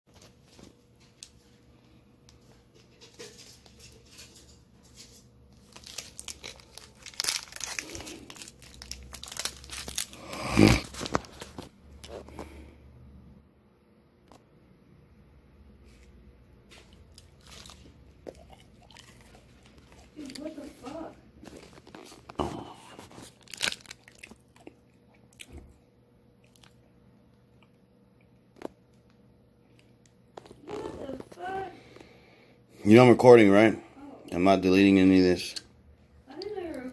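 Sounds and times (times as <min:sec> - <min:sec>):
crunching and chewing granola bar: 0:04.8 - 0:12.7, 0:16.7 - 0:25.8, 0:26.4 - 0:29.1, 0:29.7 - 0:32.2
wrapper ripping: 0:05.5 - 0:11.7, 0:17.1 - 0:24.4
plastic wrapper crinkling: 0:05.5 - 0:12.2, 0:17.0 - 0:24.6.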